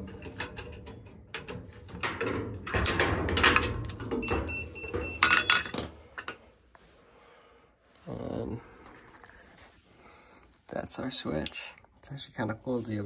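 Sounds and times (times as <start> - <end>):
hand tools clicking and rattling: 0.0 - 6.4.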